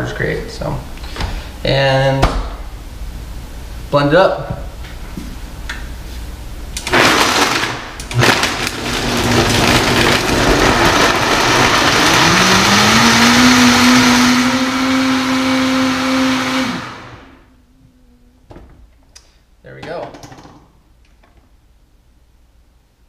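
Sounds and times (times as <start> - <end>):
blender crushing ice: 6.8 - 17.4.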